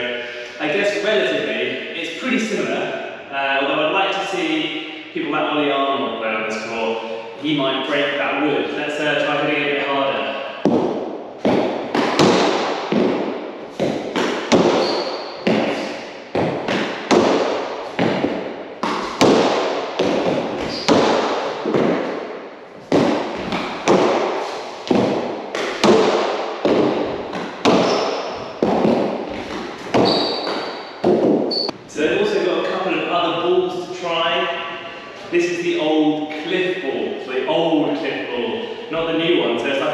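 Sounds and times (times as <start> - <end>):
ball smacking off court walls: 10.6 - 31.7
high squeaks: 14.5 - 15.9, 20.6 - 21.0, 29.9 - 30.9, 31.5 - 31.7.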